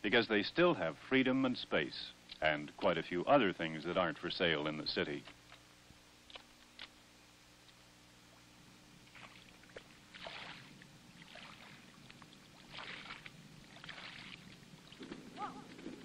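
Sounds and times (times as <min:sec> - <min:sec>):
low hum: 0:00.6 - 0:16.0
footsteps splashing in water: 0:09.1 - 0:16.0.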